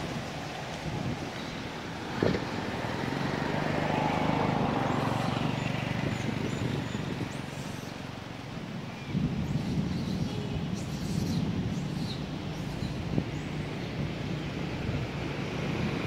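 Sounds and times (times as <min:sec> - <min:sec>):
vehicle engine passing by: 0:02.0 - 0:07.6.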